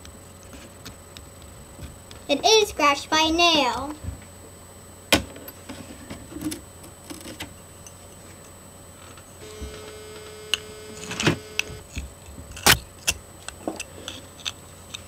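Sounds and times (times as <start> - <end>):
faint steady tone: 9.4 - 11.9.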